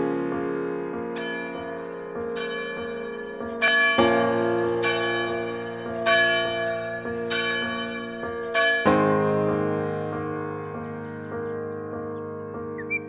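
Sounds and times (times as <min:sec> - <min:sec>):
bell-like keyboard notes: 0:11.1 - 0:13.0.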